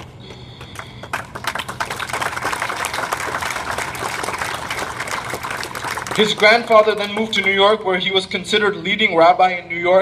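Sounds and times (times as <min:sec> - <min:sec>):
audience applauding: 0:00.6 - 0:07.7.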